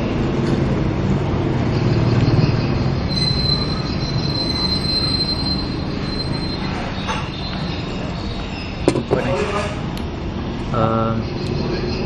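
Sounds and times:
high mechanical squeal: 1.6 - 9.9, 11.0 - 12.0.

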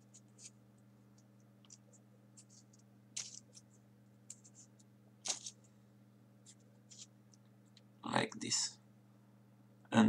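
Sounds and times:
paper rustling and clicks: 2.4 - 3.6, 5.2 - 5.6.

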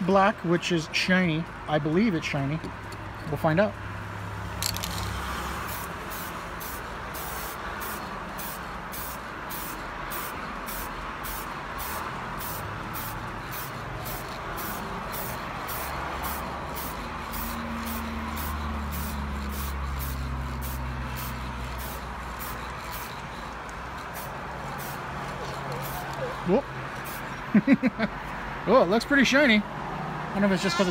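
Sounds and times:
spray paint can hissing: 4.6 - 27.4.

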